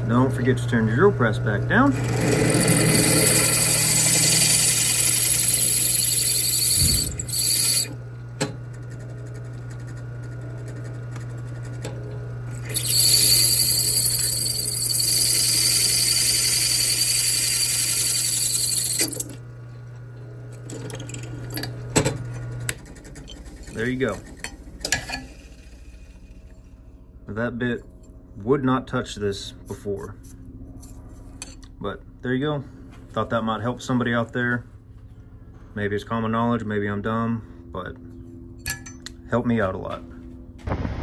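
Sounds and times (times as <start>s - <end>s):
drill press motor hum: 1.9s - 26.7s
drill bit cutting steel: 2.0s - 7.9s, 12.6s - 19.4s.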